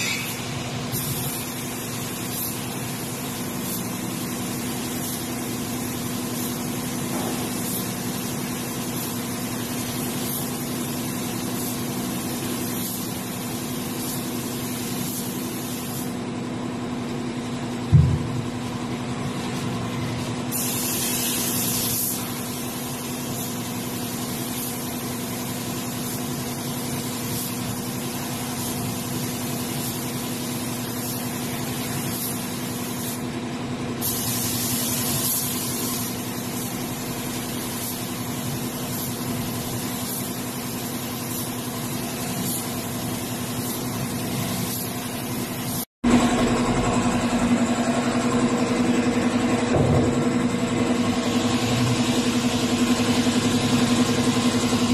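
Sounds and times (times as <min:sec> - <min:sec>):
spray gun hissing: 0:00.0 - 0:16.2, 0:19.4 - 0:33.3, 0:34.0 - 0:45.9
air compressor humming: 0:00.0 - 0:54.9.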